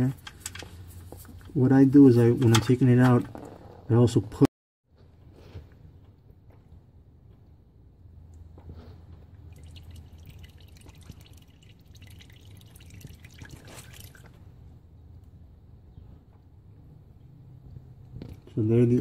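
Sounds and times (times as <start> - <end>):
oil trickling into a pan: 9.4 - 14.4.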